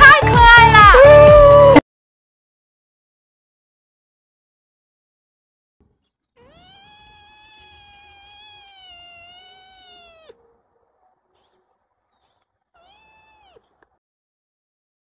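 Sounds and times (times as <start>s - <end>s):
kitten meowing: 6.4s - 10.4s, 12.2s - 13.9s.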